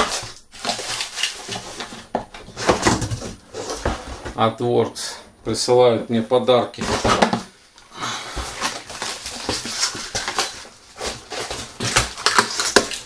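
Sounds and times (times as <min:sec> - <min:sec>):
packaging rustling and knocking: 0:00.0 - 0:04.4, 0:06.8 - 0:07.5, 0:08.3 - 0:13.0.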